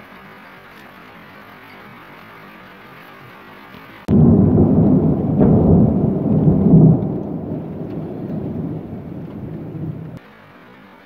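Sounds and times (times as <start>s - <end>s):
thunder rumbling: 4.1s - 10.2s.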